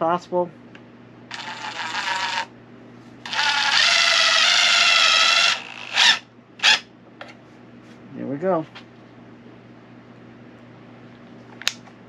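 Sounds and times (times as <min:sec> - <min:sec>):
cordless drill boring into wood: 0:01.3 - 0:02.5, 0:03.3 - 0:06.8.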